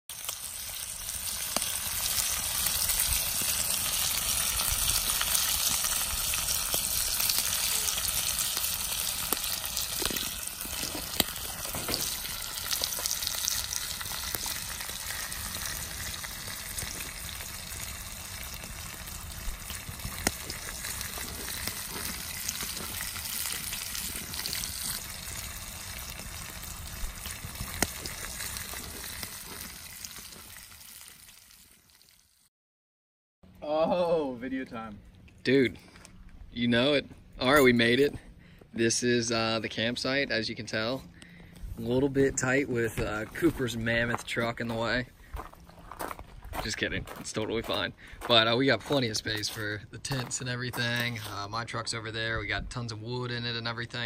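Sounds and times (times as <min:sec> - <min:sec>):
bacon sizzling: 0:00.1 - 0:32.5.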